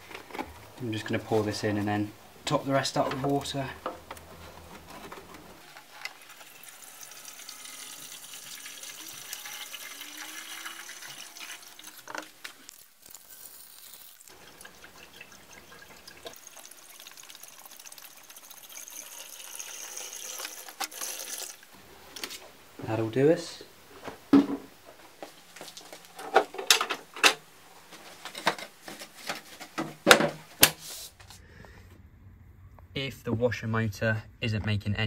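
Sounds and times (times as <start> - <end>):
liquid pouring into plastic reservoir: 14.3 - 21.7.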